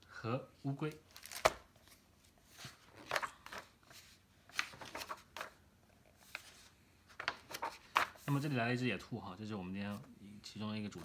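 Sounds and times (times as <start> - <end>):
pages turning: 1.0 - 5.6, 6.2 - 8.5.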